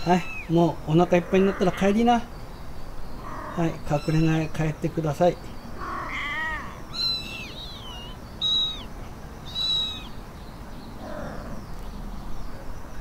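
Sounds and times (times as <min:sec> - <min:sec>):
kitten mewing: 0:05.8 - 0:08.9.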